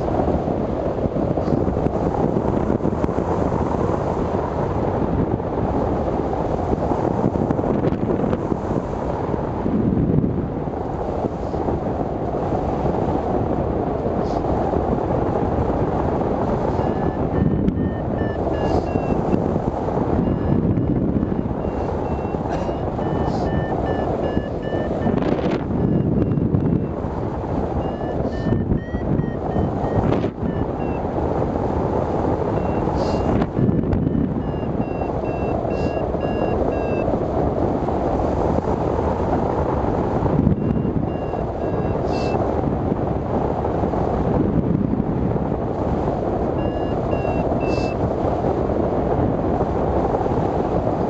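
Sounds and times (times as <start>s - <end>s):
wind on microphone: 0.0s - 51.0s
variometer beeping: 16.5s - 31.2s, 32.4s - 37.1s, 40.4s - 42.4s, 46.6s - 48.0s.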